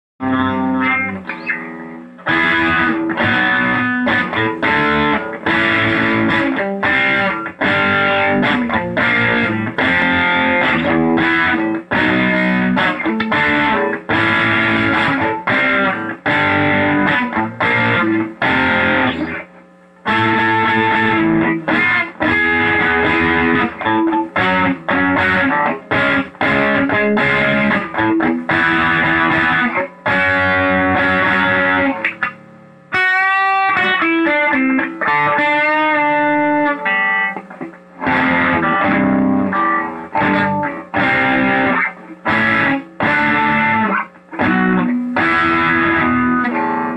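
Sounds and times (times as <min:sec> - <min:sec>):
distorted electric bass riff: 0:00.2 - 0:46.9.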